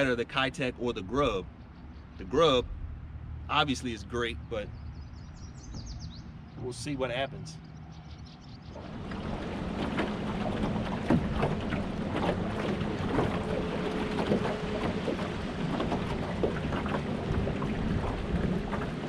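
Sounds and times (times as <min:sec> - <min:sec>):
water lapping against hull: 0:00.0 - 0:19.0
wind buffeting microphone: 0:04.7 - 0:06.4, 0:07.9 - 0:19.0.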